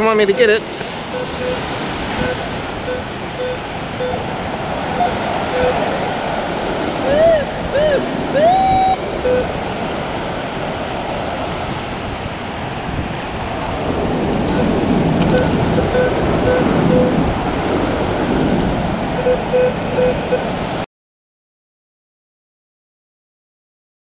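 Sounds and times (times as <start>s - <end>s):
shallow surf washing: 0.0s - 20.8s
metal detector short beeps: 1.1s - 1.6s, 2.2s - 4.2s, 5.0s - 5.8s, 7.1s - 9.5s, 15.3s - 17.1s.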